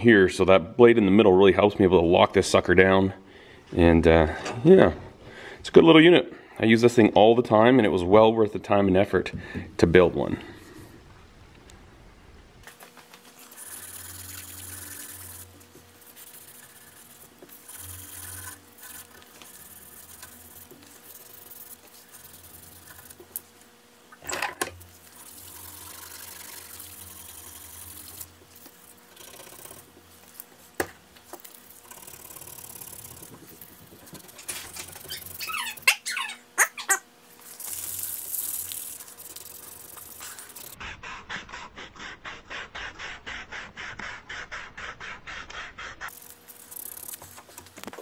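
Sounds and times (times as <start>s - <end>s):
sandpaper rubbing on wood: 13.3s - 23.3s
short squeaks: 35.0s - 37.0s.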